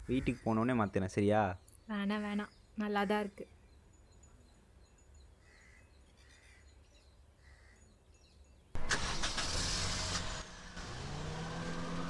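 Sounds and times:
car engine starting and running: 8.8 - 12.0.

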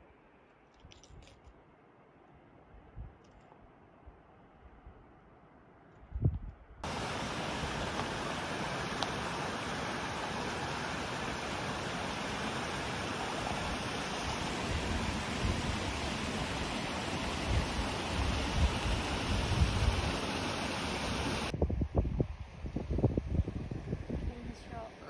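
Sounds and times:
wind gusts buffeting microphone: 6.1 - 25.0.

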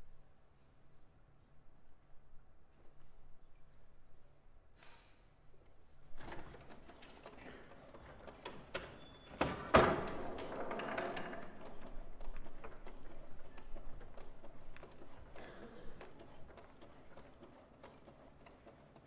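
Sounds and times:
foosball rods and ball clattering: 6.2 - 15.5.

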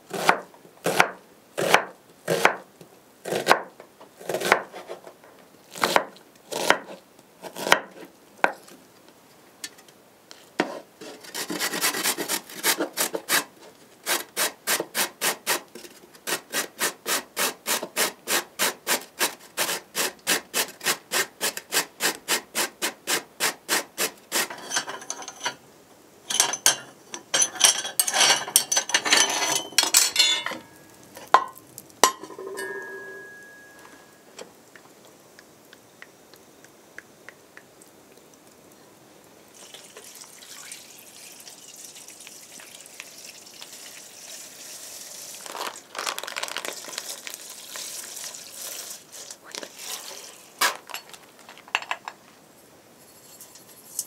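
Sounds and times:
knife chopping on wooden board: 0.1 - 2.6, 4.3 - 4.7
box grater scraping: 10.6 - 15.6, 16.2 - 24.8
metal clinks: 26.3 - 34.3.

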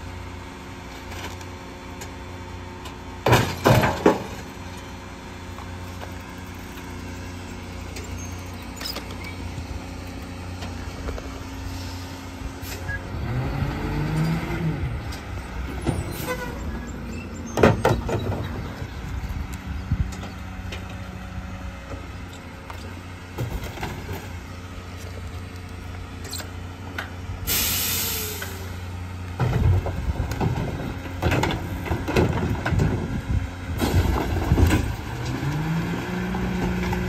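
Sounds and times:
junk clattering into hopper: 3.2 - 4.5, 33.8 - 35.7.

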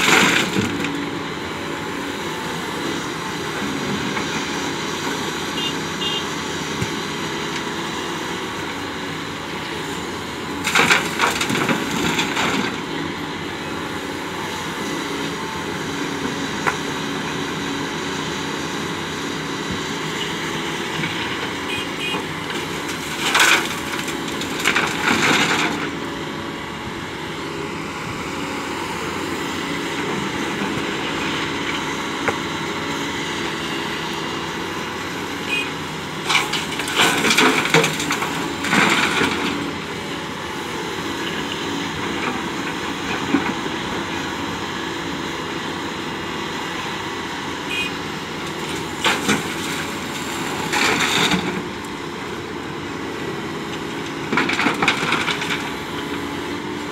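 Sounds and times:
excavator diesel engine running: 0.0 - 56.9.

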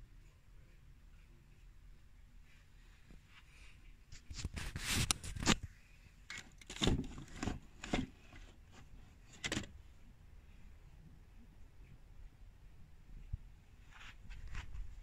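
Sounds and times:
handling scraping and rustling: 2.5 - 9.8.

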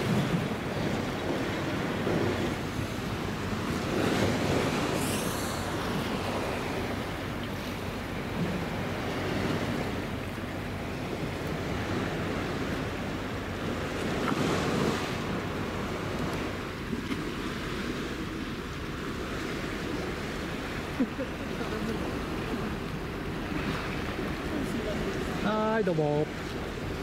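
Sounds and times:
water lapping at a quay: 0.0 - 27.0.

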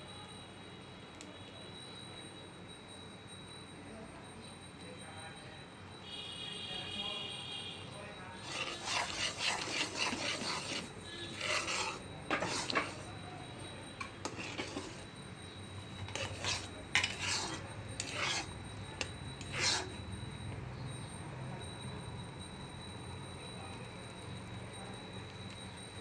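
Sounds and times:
metal spatula scraping a pan: 8.4 - 13.2, 14.0 - 15.2, 15.8 - 20.1.

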